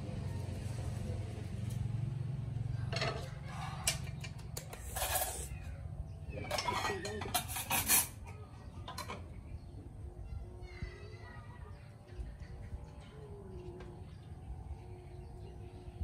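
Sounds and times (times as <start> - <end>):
pots and lids clattering: 2.9 - 5.5, 6.3 - 9.3
low steady hum: 8.3 - 16.0.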